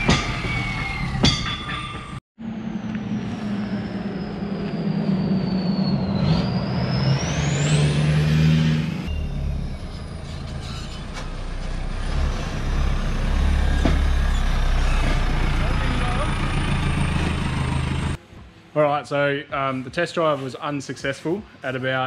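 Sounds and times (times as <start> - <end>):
engine rumble: 0.0 - 18.3
diesel engine revving: 2.1 - 18.2
turbo whistle: 3.4 - 7.8.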